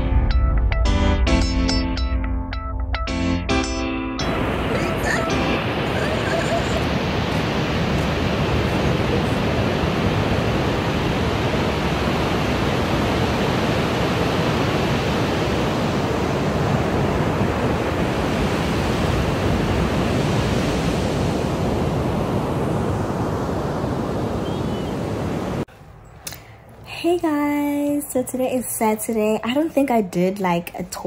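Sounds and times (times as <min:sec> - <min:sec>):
ocean surf breaking: 0:04.2 - 0:25.7.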